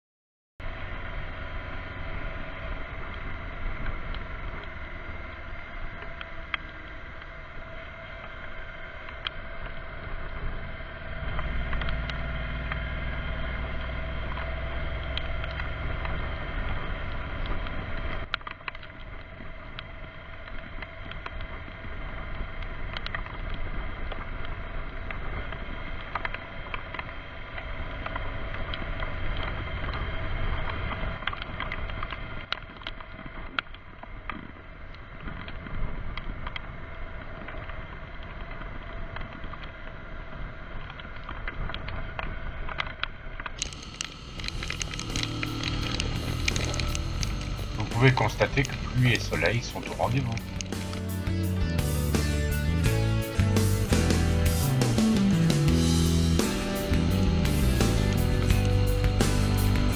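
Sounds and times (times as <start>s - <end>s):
motorcycle engine cruising: 0.6s - 33.4s, 43.5s - 59.9s
deep rumble: 0.6s - 59.9s
sharp ticks: 42.8s - 52.3s, 53.3s - 59.9s.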